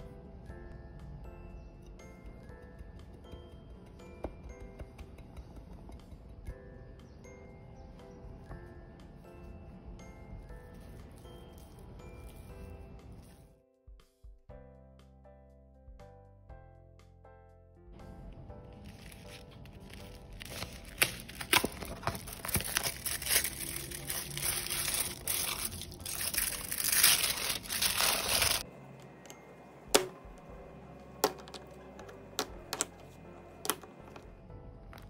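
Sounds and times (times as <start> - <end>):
foil wrapper tearing and crinkling: 18.8 - 28.6.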